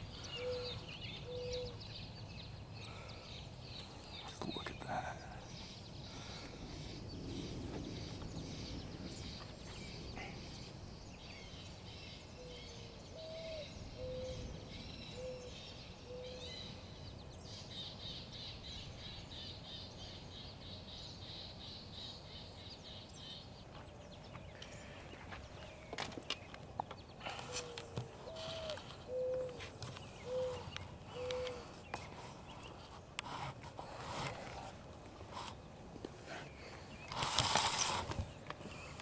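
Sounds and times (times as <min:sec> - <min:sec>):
low rumbling background noise: 0:00.0 - 0:37.1
birds chirping and calling: 0:00.0 - 0:39.0
low whistled bird notes: 0:27.5 - 0:29.6.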